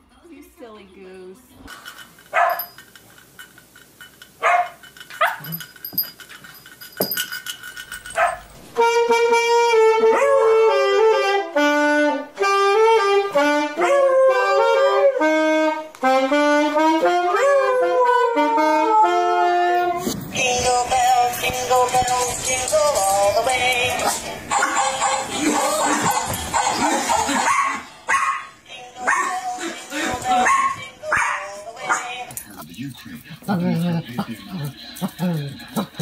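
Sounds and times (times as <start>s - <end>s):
dog yipping and barking: 2.3s - 2.8s, 4.4s - 5.6s, 8.1s - 8.5s, 27.4s - 29.4s, 30.3s - 32.1s
saxophone slow melody: 8.8s - 20.2s
music: 8.8s - 32.4s.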